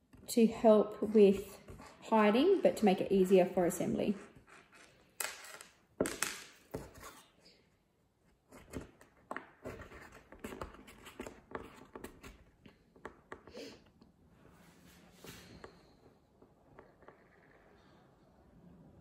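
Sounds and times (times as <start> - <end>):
chipboard tapping and scraping: 16.4 - 17.6.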